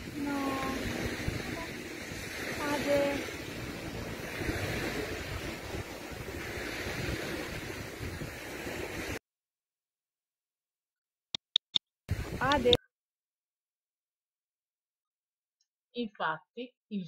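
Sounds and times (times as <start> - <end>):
water noise: 0.0 - 9.2, 12.1 - 12.8
wind: 0.0 - 9.2, 12.1 - 12.8.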